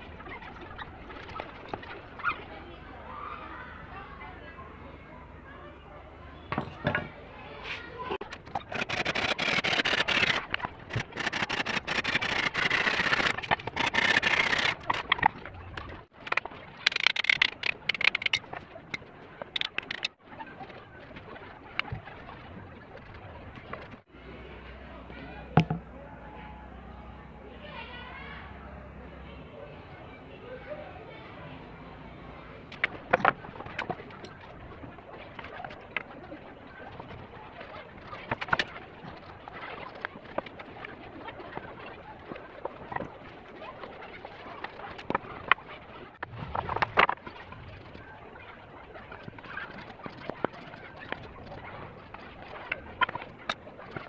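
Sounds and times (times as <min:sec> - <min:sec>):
handsaw cutting wood: 0:08.6 - 0:15.1.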